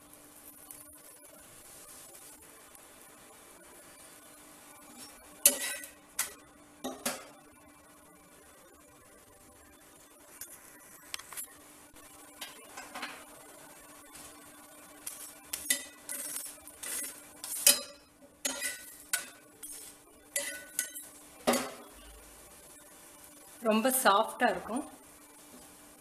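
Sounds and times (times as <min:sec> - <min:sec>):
faint steady hum: 0:00.0 - 0:26.0
spatula scraping iron griddle: 0:04.9 - 0:05.9, 0:15.1 - 0:21.1.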